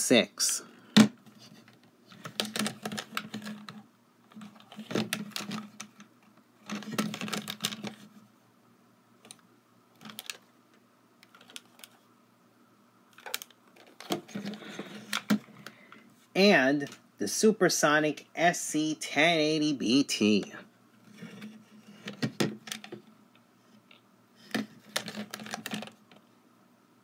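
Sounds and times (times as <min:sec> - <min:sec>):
plastic radio cases clicking and rubbing: 0:01.0 - 0:08.2, 0:10.0 - 0:10.5, 0:11.2 - 0:12.0, 0:13.1 - 0:15.8, 0:21.1 - 0:23.1, 0:23.8 - 0:26.3.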